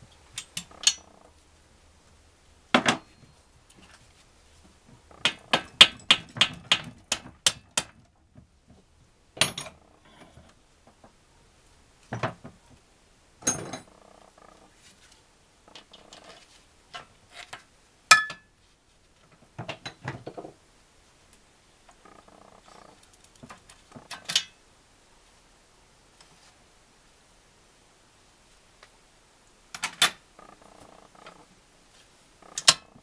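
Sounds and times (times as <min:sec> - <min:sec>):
metal clinks: 0:00.3 - 0:01.2, 0:13.4 - 0:14.0.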